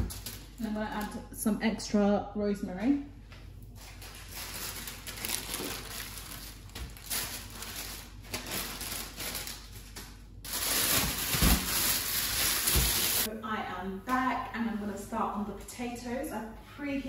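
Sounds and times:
plastic bag crinkling: 0.0 - 1.2, 3.8 - 13.3.

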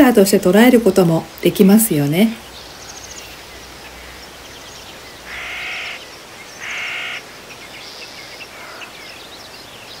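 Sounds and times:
small birds chirping: 0.0 - 10.0
crow cawing: 5.3 - 6.0, 6.6 - 7.3, 8.5 - 9.0.

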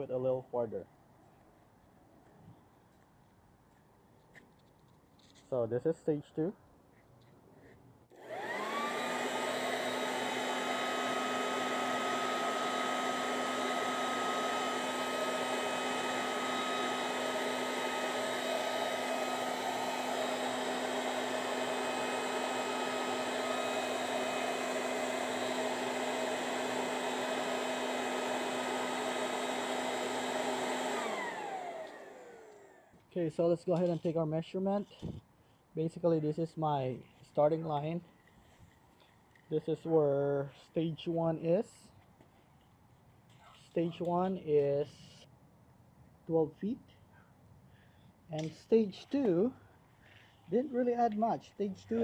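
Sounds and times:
electric leaf blower whining: 8.1 - 33.0.

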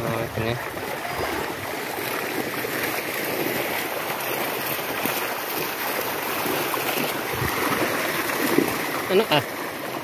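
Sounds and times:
fish thrashing and splashing: 0.0 - 10.0.

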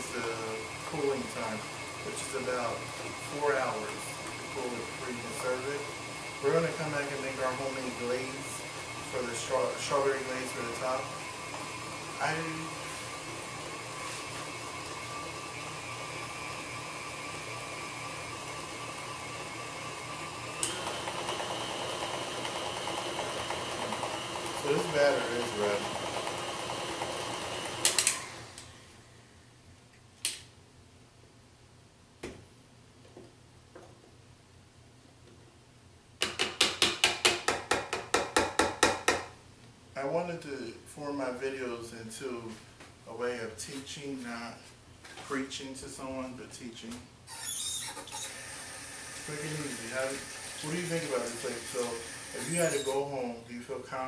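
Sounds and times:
stand mixer running: 0.0 - 28.9, 48.0 - 53.1.

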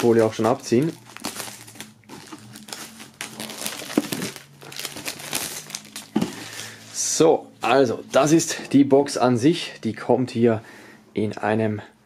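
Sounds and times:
plastic film crinkling: 0.0 - 7.1.

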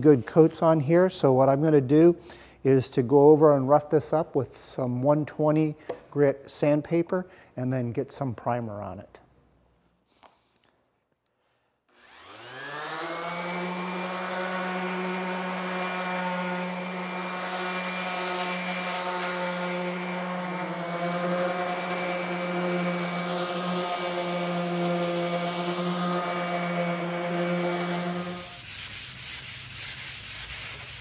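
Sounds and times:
orbital sander motor whining: 11.9 - 28.7
sander sanding epoxy: 11.9 - 31.0.

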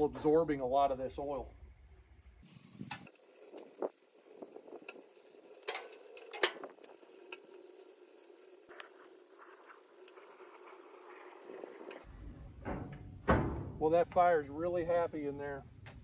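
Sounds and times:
aerosol spray hissing: 2.4 - 12.0.

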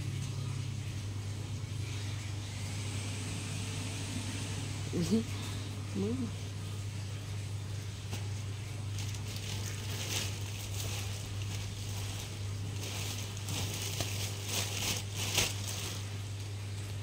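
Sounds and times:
rustling and scuffing: 8.9 - 16.1.

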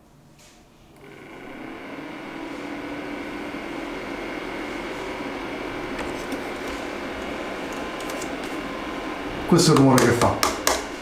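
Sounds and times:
faint hum: 0.0 - 10.2
projector cooling fan whirring: 0.0 - 11.0.

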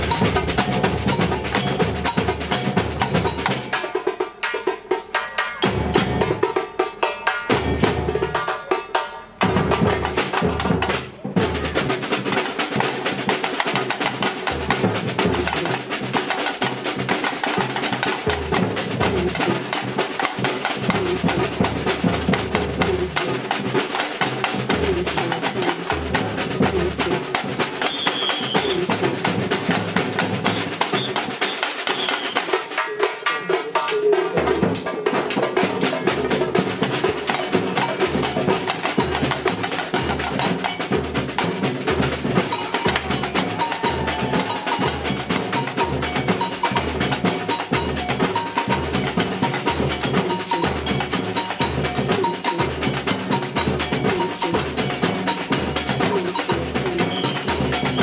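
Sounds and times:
bass drums: 0.0 - 3.7, 5.6 - 6.6, 9.4 - 27.7, 35.7 - 58.0
samba drum ensemble playing: 0.0 - 58.0.

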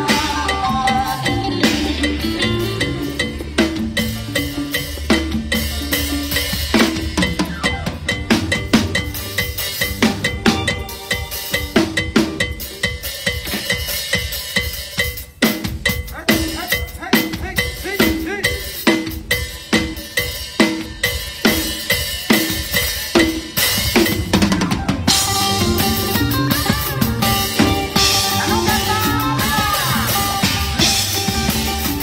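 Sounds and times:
cowbell struck steadily: 0.0 - 24.2.

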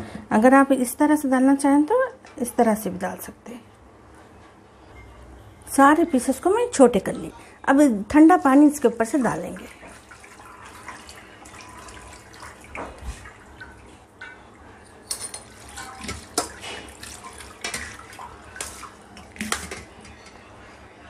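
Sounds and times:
water splashing and draining: 9.2 - 20.0.

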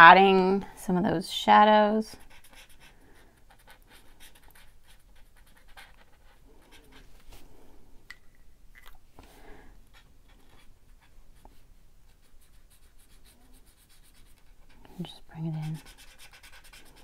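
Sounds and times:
marker scratching on paper: 2.2 - 7.1, 10.0 - 17.0.

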